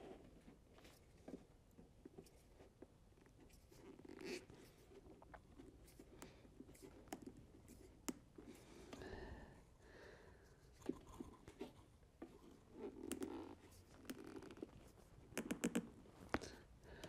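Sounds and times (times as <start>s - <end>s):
faint clicks and taps: 4.9s - 8.3s, 10.8s - 17.0s.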